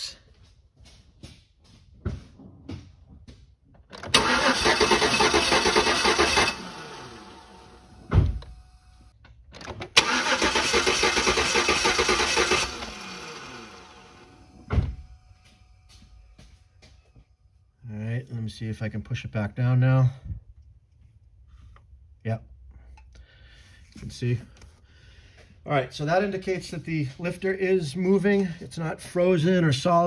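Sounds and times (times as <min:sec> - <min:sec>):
engine cranking on starter: 0:03.9 - 0:08.7, 0:09.6 - 0:14.7.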